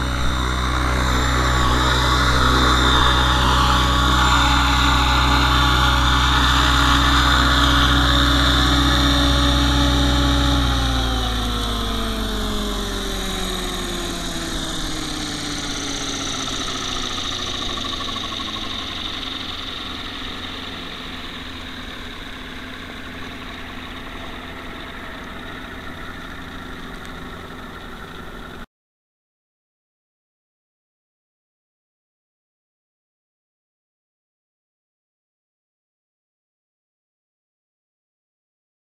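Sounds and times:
model helicopter motor and rotor whine: 0.0 - 28.7.

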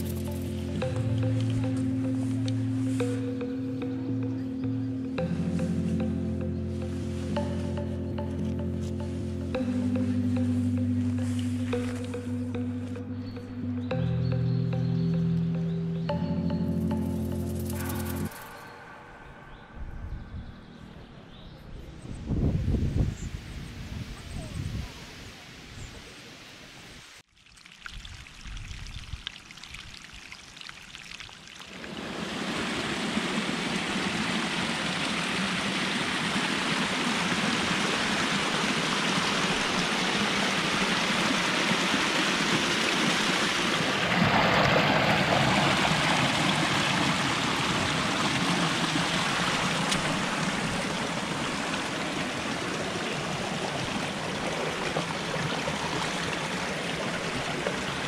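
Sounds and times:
mountain stream rushing: 31.6 - 58.0.

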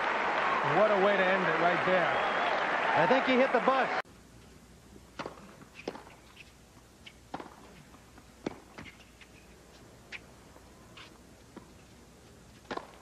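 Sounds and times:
rackets hitting tennis ball: 5.1 - 6.4, 7.1 - 9.5, 12.6 - 13.0
tennis ball bouncing: 5.1 - 9.3, 12.6 - 13.0.

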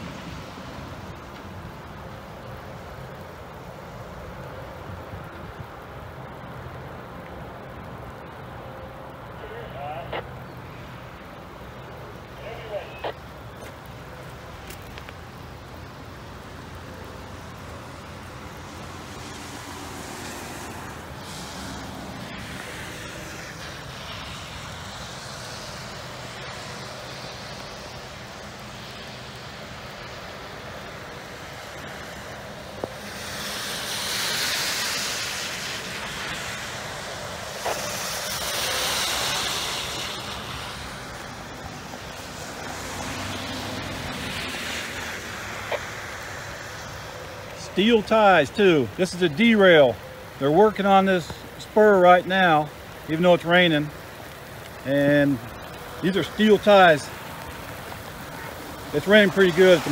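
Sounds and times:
rain: 0.0 - 59.9
vehicle tyres hissing on wet road: 0.0 - 59.9
wind: 0.0 - 59.9.

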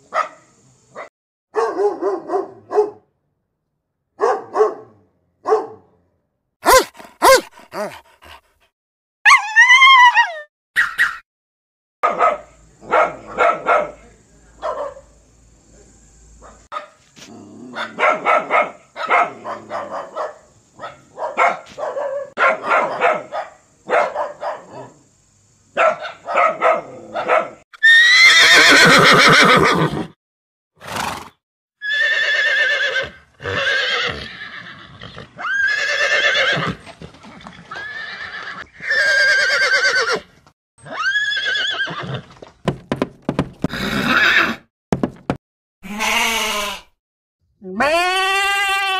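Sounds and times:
dog barking: 0.1 - 3.1, 4.2 - 6.0, 6.6 - 8.4, 12.0 - 15.2, 16.4 - 17.0, 17.6 - 25.0, 25.7 - 27.6
horse neighing: 27.8 - 30.2, 30.8 - 42.4, 43.6 - 44.6, 45.8 - 46.9.

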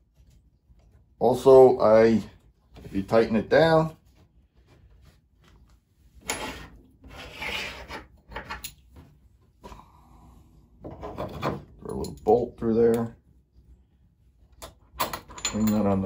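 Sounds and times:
wood scraping on wood: 6.2 - 8.6.

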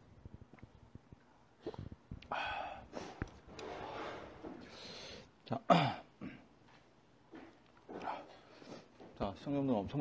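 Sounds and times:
man eating with mouth sounds: 0.3 - 4.0
heavy noisy breathing: 1.6 - 5.3.

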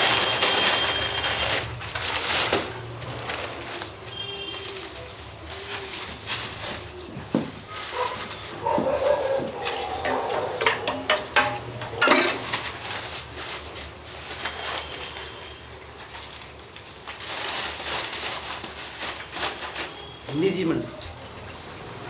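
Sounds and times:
plastic bags rustling: 0.0 - 21.8
spoon scraping steel pots: 9.1 - 12.8.

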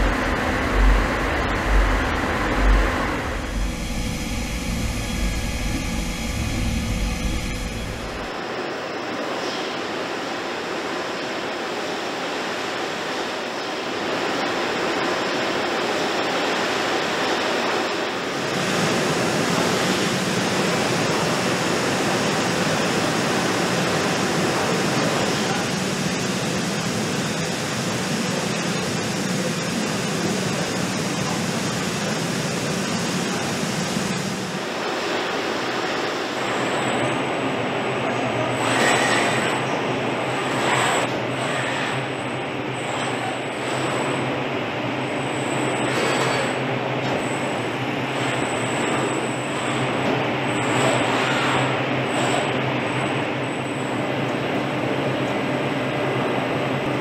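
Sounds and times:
low hum: 0.0 - 8.4.

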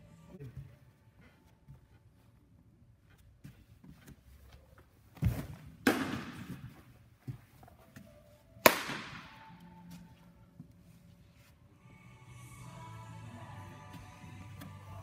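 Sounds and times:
sharp pops with echo: 8.6 - 9.4.

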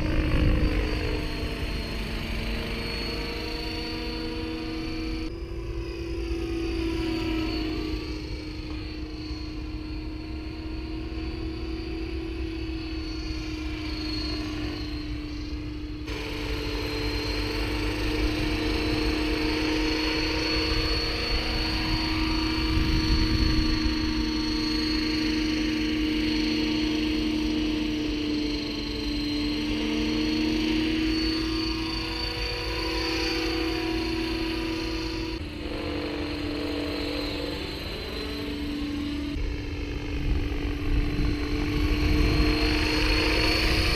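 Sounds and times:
model helicopter whine: 0.0 - 43.9
wind rumble on microphone: 20.5 - 24.8, 39.3 - 43.9.

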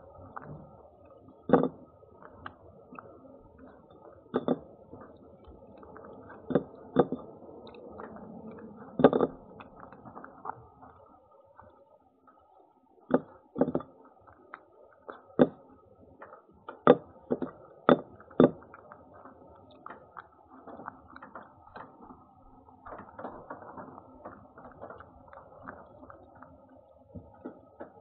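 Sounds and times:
sharp knocks and clicks: 1.5 - 1.8, 4.3 - 5.6, 6.3 - 8.2, 8.9 - 10.3, 13.1 - 14.0, 15.1 - 15.6, 16.7 - 18.8.

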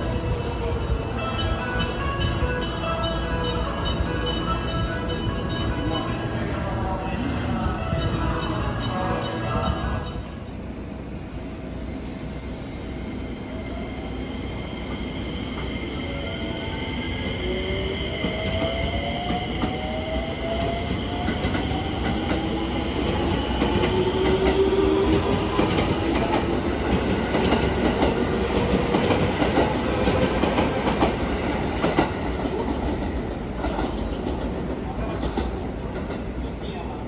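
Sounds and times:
train wheels clattering over rails: 18.1 - 36.4.

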